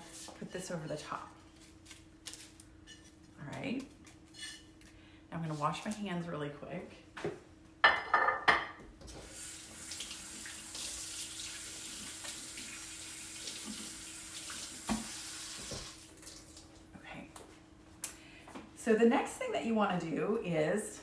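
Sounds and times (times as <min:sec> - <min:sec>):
sink tap running: 0:09.2 - 0:16.6.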